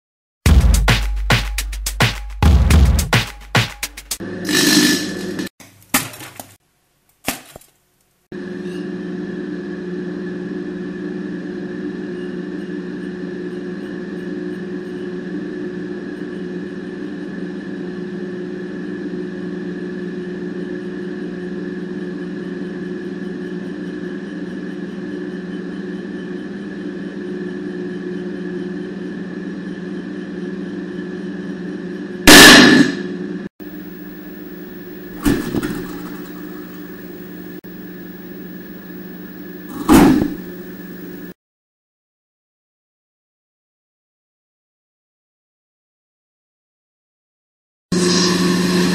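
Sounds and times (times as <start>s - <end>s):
microwave oven humming: 4.2s - 5.8s, 8.3s - 41.4s, 48.0s - 48.9s
loud bursts of noise: 32.3s - 33.0s.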